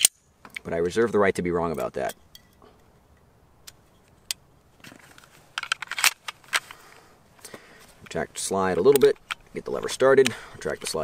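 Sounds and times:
pistol parts clicking: 5.5 - 6.8, 8.0 - 11.0
pistol slide scraping: 5.5 - 6.8.

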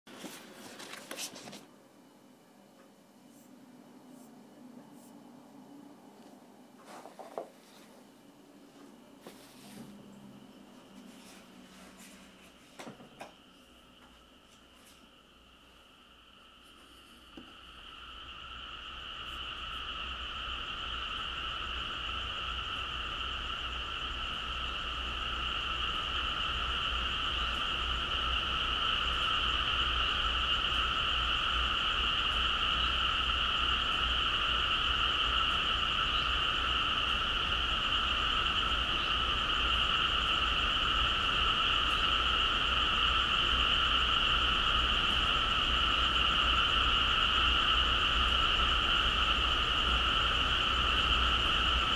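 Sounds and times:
chorus of frogs calling: 20.8 - 51.9.

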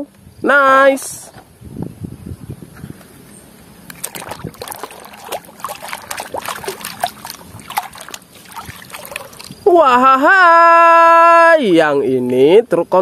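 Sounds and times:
water splashing in a plastic basin: 3.8 - 10.0.

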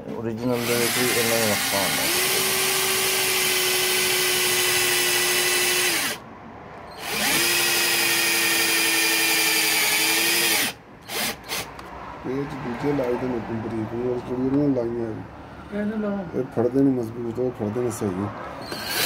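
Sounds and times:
cordless drill driving bolts: 0.4 - 6.2, 6.9 - 11.7, 18.6 - 19.0.

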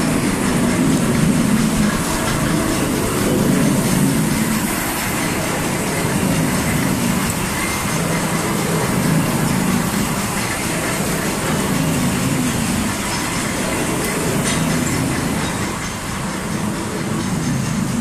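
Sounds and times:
machinery running: 0.0 - 18.0.

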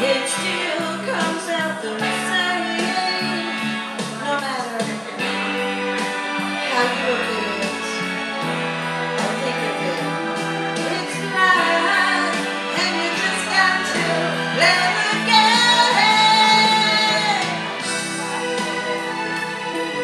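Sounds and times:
woman singing into a microphone: 0.0 - 5.6, 6.6 - 8.1, 9.2 - 17.9
instrumental accompaniment: 0.0 - 20.0.

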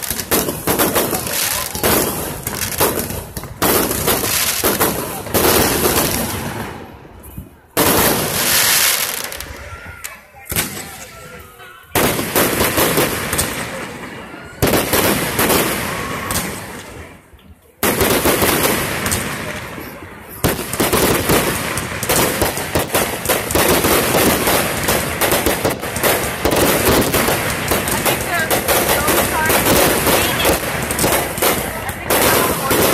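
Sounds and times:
fireworks exploding: 0.0 - 32.9
rapid pops and crackles: 20.4 - 32.9.

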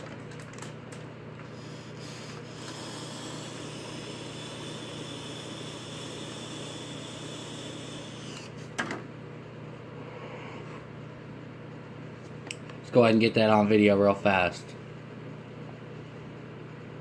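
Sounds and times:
vape air hiss: 1.5 - 8.5.

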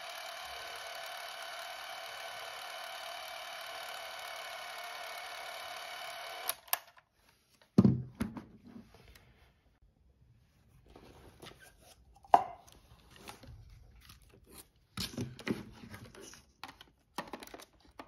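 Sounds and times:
movie camera motor whirring: 0.0 - 6.9
camera clicks: 6.1 - 6.9.

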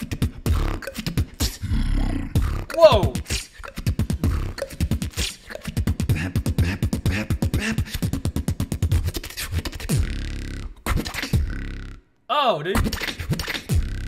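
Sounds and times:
beatboxing into microphone: 0.0 - 14.0.

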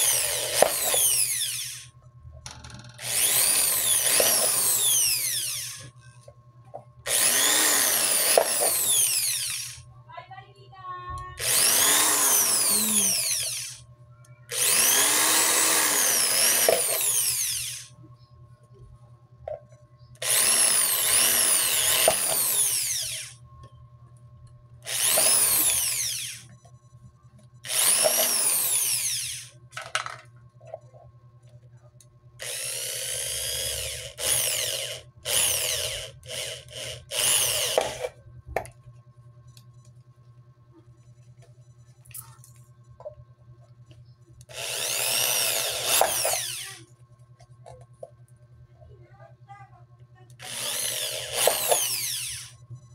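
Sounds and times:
electric drill whining: 0.0 - 1.9, 2.8 - 5.9, 7.1 - 9.8, 11.4 - 13.8, 14.5 - 17.9, 20.2 - 23.4, 24.8 - 26.5, 27.6 - 29.6, 32.4 - 38.2, 44.5 - 46.9, 50.4 - 52.6.

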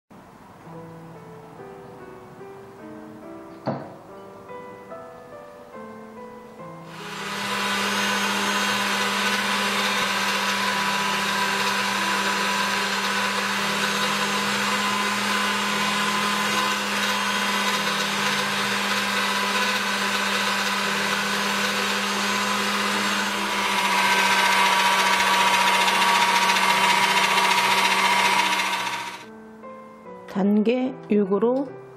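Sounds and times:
pasta machine motor running: 6.9 - 29.3.

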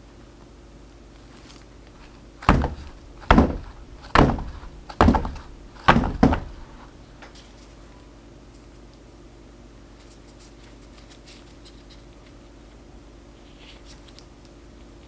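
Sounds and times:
silicone mold banging on counter: 2.0 - 7.0.

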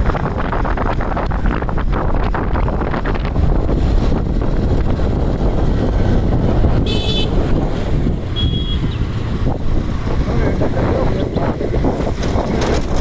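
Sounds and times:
wind and road noise: 0.0 - 13.0
vehicle horn honking: 6.8 - 7.4, 8.3 - 9.0.

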